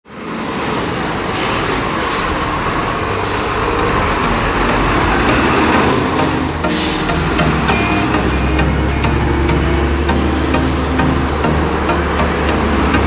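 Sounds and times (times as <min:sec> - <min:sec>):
heavy diesel engines running: 0:00.1 - 0:13.0
air brake hisses: 0:01.4 - 0:02.5, 0:03.2 - 0:03.8, 0:06.6 - 0:08.9.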